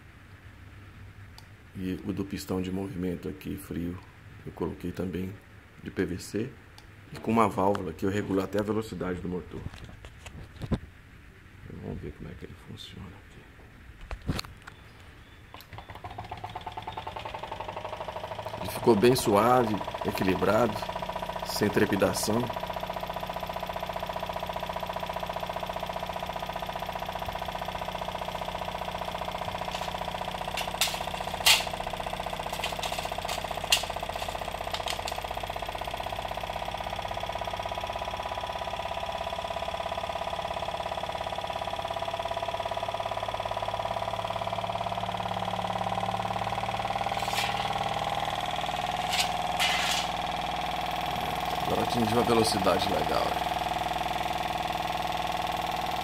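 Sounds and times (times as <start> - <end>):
small engine running: 15.5 - 56.0
sharp clicks: 28.7 - 37.3.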